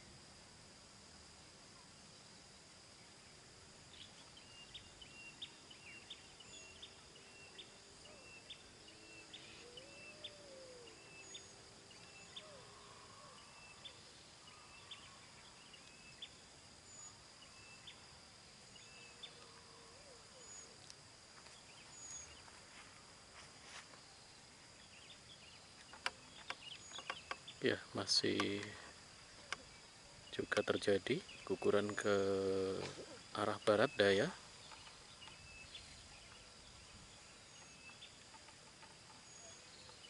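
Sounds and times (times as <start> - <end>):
bird chirps: 3.9 - 18.0, 24.8 - 40.0
high-pitched insect drone: 3.9 - 21.2.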